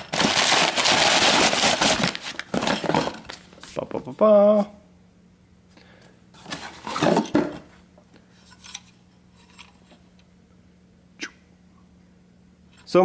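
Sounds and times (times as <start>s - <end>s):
hard objects clattering: 0.0s - 3.4s, 6.4s - 7.7s.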